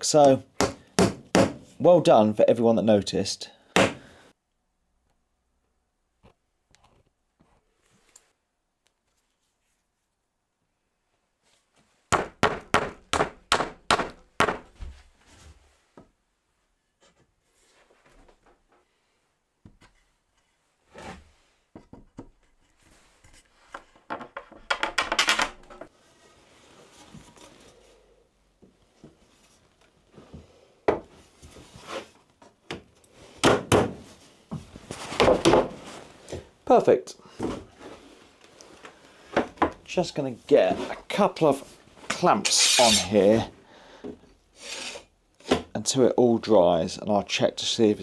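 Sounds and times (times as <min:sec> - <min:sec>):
wood scraping on wood: 0:31.3 - 0:32.2, 0:40.5 - 0:43.4, 0:44.6 - 0:45.1.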